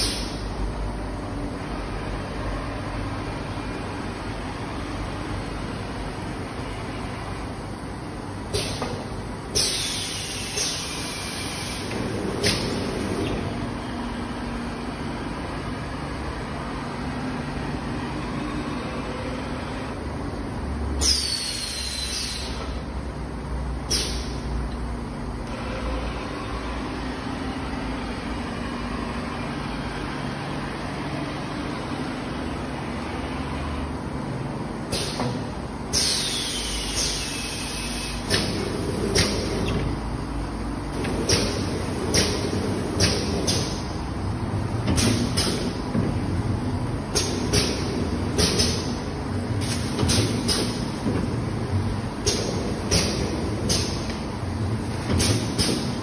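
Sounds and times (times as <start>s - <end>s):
compressed air hissing: 0.0s - 0.4s, 8.5s - 13.3s, 21.0s - 22.6s, 23.9s - 24.4s, 34.9s - 35.2s, 35.9s - 39.7s
packing machine humming: 0.0s - 23.7s, 24.6s - 56.0s.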